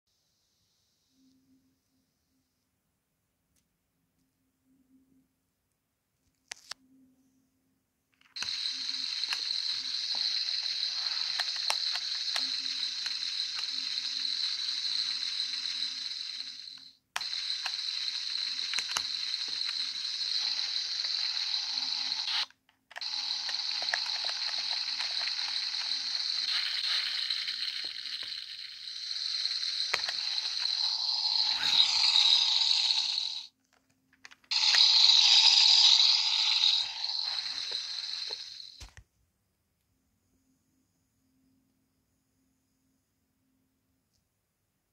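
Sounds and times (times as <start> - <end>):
toy electronic sizzling sound: 8.4 - 33.5, 34.4 - 38.9.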